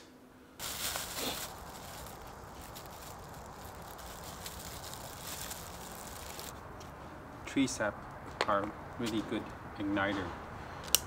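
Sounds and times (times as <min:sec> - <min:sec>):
outdoor hiss with low rumble: 0:00.0 - 0:11.0
brighter rustling: 0:00.6 - 0:07.1.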